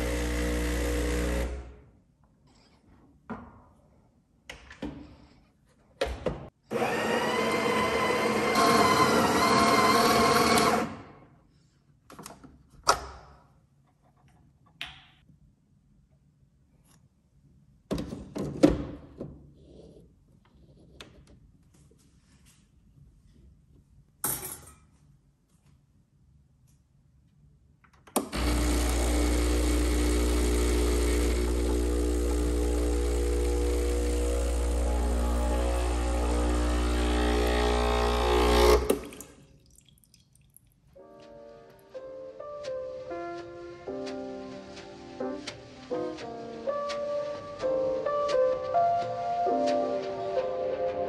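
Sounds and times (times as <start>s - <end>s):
espresso pump humming: 0.0s - 1.5s, 28.4s - 39.1s
coffee grinder running: 0.0s - 1.7s, 6.7s - 11.0s, 28.3s - 39.2s.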